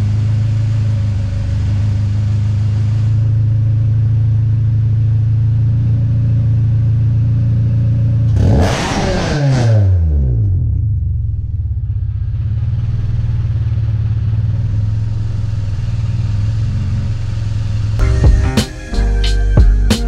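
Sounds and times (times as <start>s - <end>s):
car engine idling: 0.0s - 8.3s, 10.8s - 20.0s
car engine revving: 8.3s - 20.0s
music: 18.0s - 20.0s.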